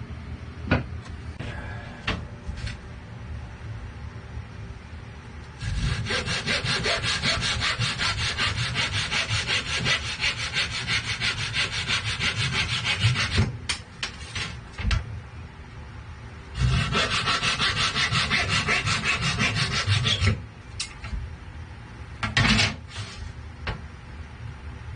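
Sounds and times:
tool scraping wood: 5.6s - 14.6s, 16.6s - 20.4s.

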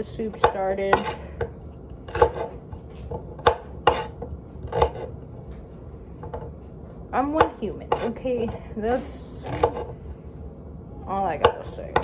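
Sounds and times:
knife chopping on wooden board: 0.2s - 5.5s, 7.3s - 8.6s, 9.4s - 9.9s, 11.3s - 12.0s.

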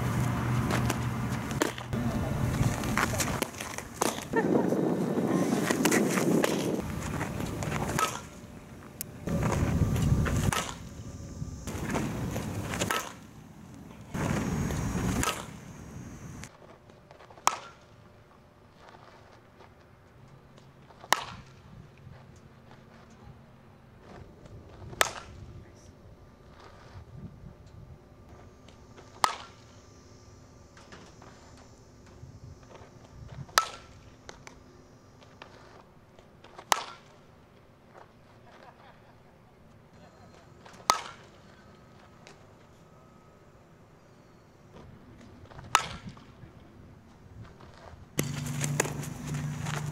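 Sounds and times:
bat cracking on ball: 0.7s - 2.0s, 7.6s - 8.4s, 10.4s - 10.9s, 11.7s - 13.3s, 14.2s - 15.6s, 17.4s - 17.9s, 21.0s - 21.6s, 29.2s - 29.6s, 33.5s - 34.6s, 36.4s - 37.2s, 40.6s - 41.4s, 45.6s - 46.3s, 48.2s - 49.9s.

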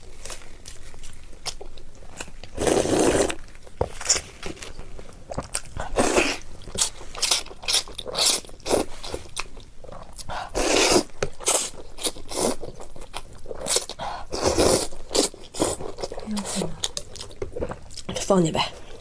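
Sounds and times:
wet chewing: 0.1s - 19.0s
noodle slurping: 2.5s - 3.4s, 10.3s - 12.6s.

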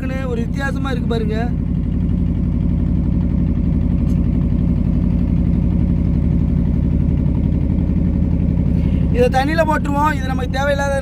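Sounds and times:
boat engine humming: 0.0s - 11.0s.

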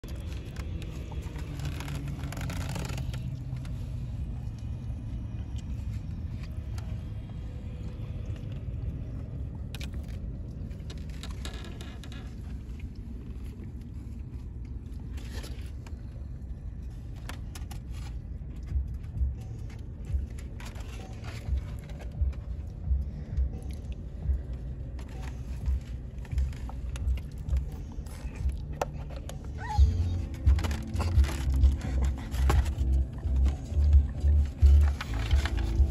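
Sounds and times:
car interior rumble: 0.0s - 35.9s.

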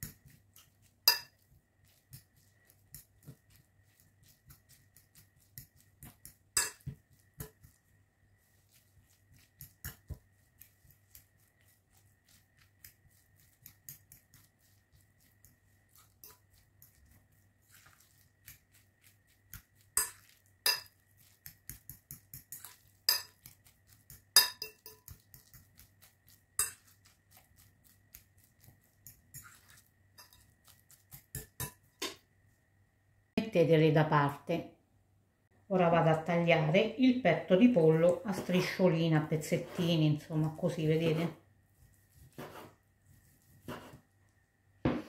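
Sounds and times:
fork clinking on glass bowl: 1.0s - 1.4s, 5.6s - 7.6s, 16.1s - 17.0s, 19.8s - 25.7s, 26.6s - 27.1s, 28.9s - 30.5s, 31.3s - 32.2s.

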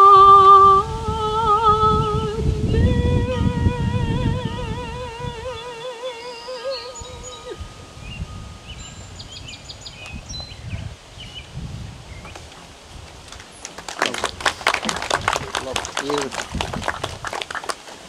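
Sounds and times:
singer holding note with vibrato: 0.0s - 8.2s
garden ambience: 0.0s - 18.0s
hand clapping: 13.3s - 18.0s.

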